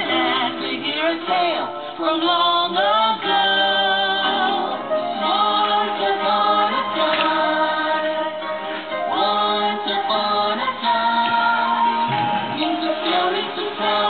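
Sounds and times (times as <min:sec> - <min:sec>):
instrumental backing: 0:00.0 - 0:14.0
several voices singing: 0:00.0 - 0:14.0.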